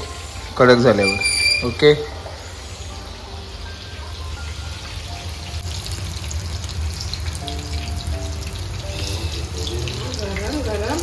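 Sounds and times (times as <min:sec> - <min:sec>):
food deep-frying in oil: 0:00.0 - 0:11.0.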